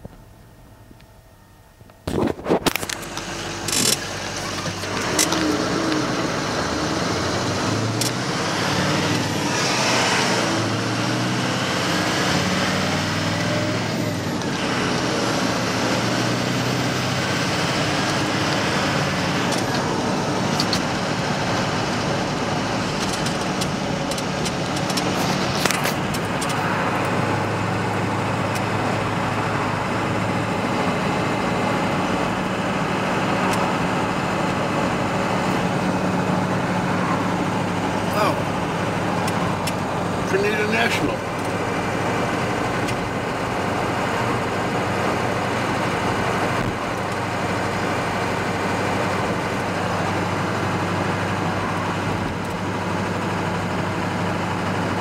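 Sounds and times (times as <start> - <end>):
car cabin road noise: 0.0 - 55.0
sharp clicks: 22.9 - 27.2.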